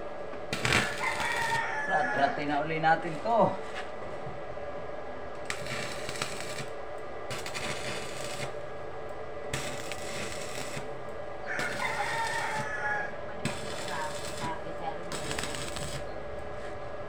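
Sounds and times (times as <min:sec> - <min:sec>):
welding arc crackling and sizzling: 0:00.0 - 0:01.7, 0:02.4 - 0:03.7, 0:05.3 - 0:16.6
rooster crowing: 0:00.6 - 0:03.6, 0:11.4 - 0:14.6.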